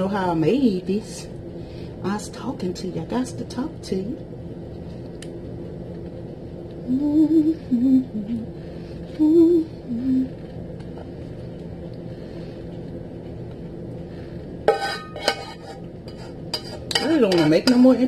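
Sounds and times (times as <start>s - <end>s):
woman humming: 6.8s - 8.5s, 9.1s - 10.4s
metal pot clanking: 14.7s - 18.0s.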